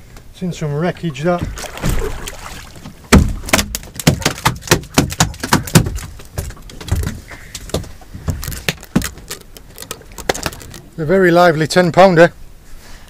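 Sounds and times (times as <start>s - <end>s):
eel thrashing on boat deck: 1.3s - 11.0s.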